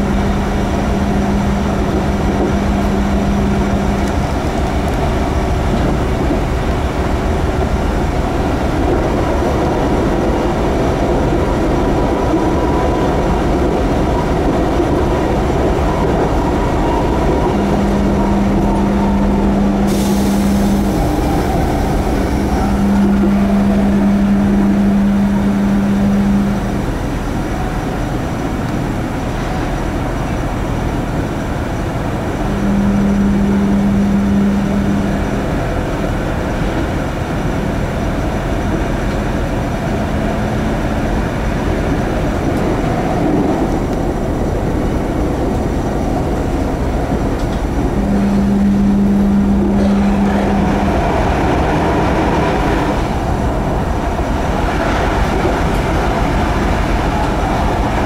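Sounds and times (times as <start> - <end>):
low hum: 0.0 - 58.0
wheels rumbling on rail: 0.0 - 58.0.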